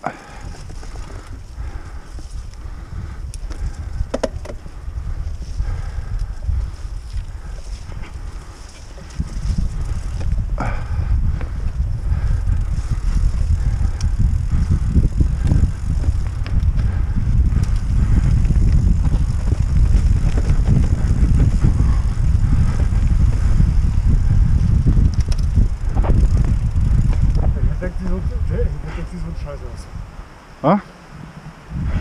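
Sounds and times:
wind rumbling on microphone: 0:00.0 - 0:32.0
bike knocks and rattles: 0:03.4 - 0:05.5, 0:06.3 - 0:11.8, 0:12.4 - 0:27.7.

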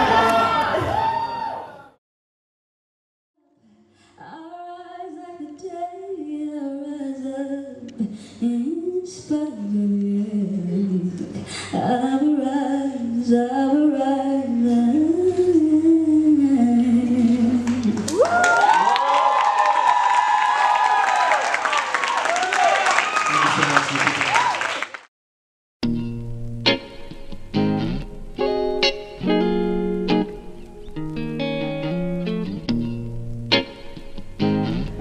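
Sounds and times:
woman singing slow melody: 0:03.5 - 0:18.1.

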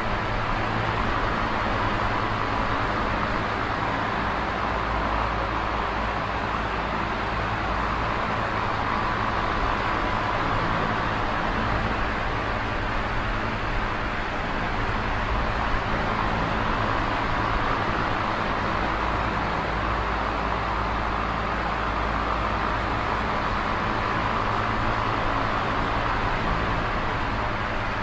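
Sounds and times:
electric fan air rush: 0:00.0 - 0:28.0.

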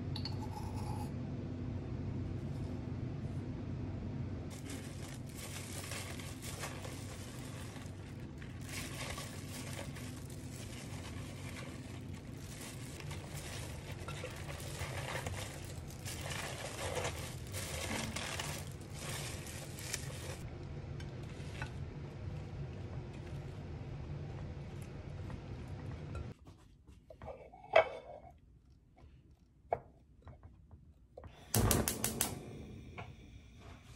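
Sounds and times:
scraping against glass bowl: 0:00.2 - 0:01.1
cabbage leaves rustling and crunching: 0:04.5 - 0:20.4
steady low hum: 0:31.4 - 0:33.9.

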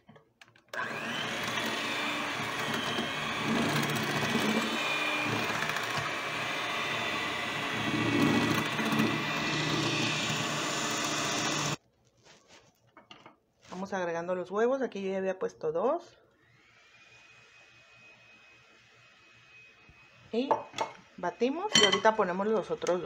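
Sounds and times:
electric mixer whining: 0:00.7 - 0:11.8.

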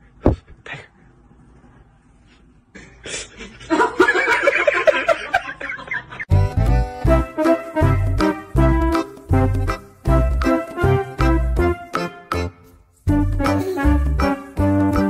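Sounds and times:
person laughing in snickers: 0:13.4 - 0:14.1.

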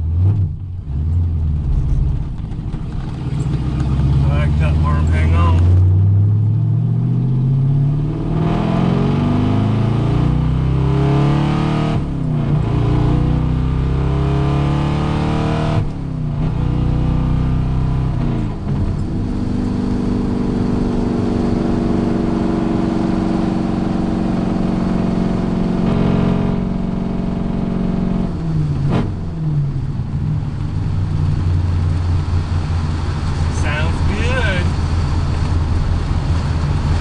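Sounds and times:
car engine revving from cabin: 0:03.1 - 0:29.7, 0:33.4 - 0:34.9.

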